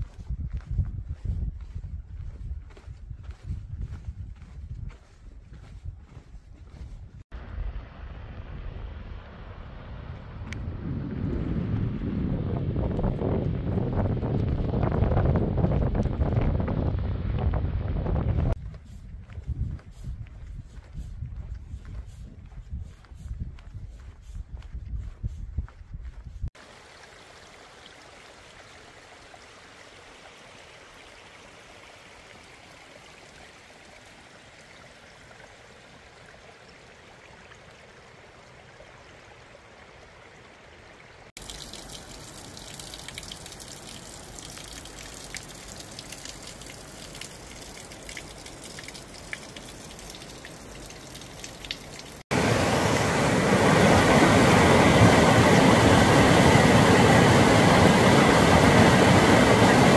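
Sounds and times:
creek water rushing: 0:26.6 - 0:59.9.

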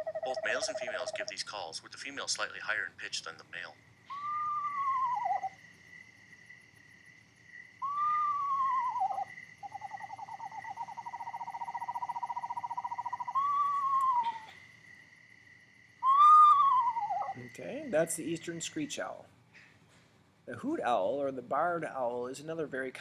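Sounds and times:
owl trill: 0:00.0 - 0:01.4, 0:04.0 - 0:05.8, 0:07.6 - 0:14.7, 0:16.0 - 0:17.5
faint steady high tone: 0:00.0 - 0:01.5, 0:07.8 - 0:14.6
owl whistled whinnies: 0:04.1 - 0:05.6, 0:07.8 - 0:14.6, 0:16.0 - 0:17.4.

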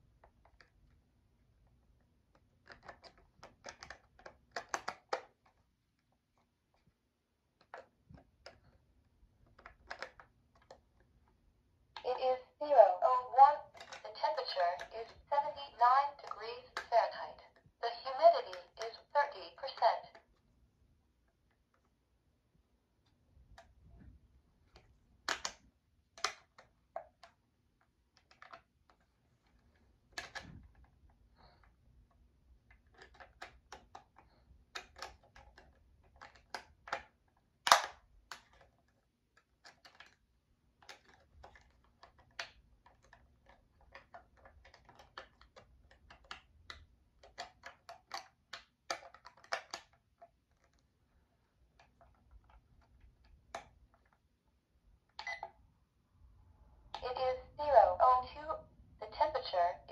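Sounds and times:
plastic button clicks: 0:13.7 - 0:17.0, 0:18.4 - 0:20.2, 0:24.8 - 0:25.6, 0:36.2 - 0:38.6.

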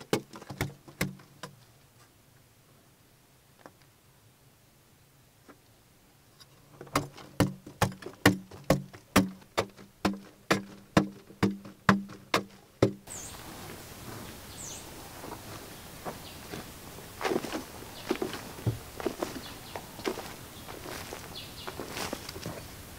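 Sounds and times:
open-air ambience: 0:00.0 - 0:22.9
bird chirps: 0:13.1 - 0:13.4, 0:14.2 - 0:15.0, 0:19.3 - 0:22.3.

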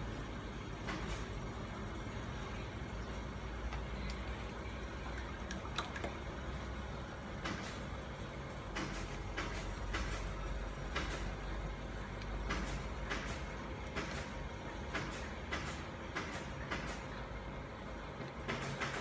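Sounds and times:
water splashing in plastic tub: 0:05.0 - 0:06.7.

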